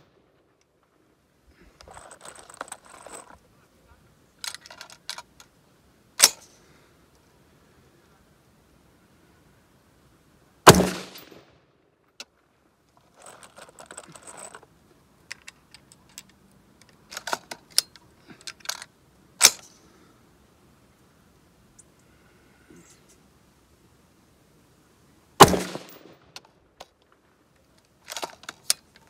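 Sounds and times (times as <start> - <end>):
rustling: 0.0 - 7.5, 12.0 - 20.2
rifle shots with echo: 10.7 - 11.6, 25.4 - 26.3.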